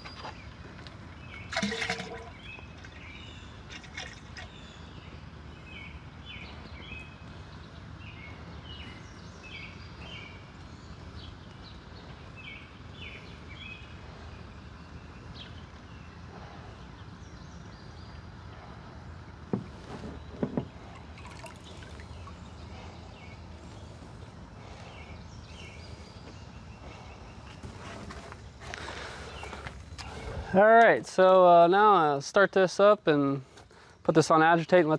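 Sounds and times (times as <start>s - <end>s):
birds chirping: 0.0s - 34.9s
liquid trickling into tank: 1.4s - 4.6s, 20.8s - 22.6s.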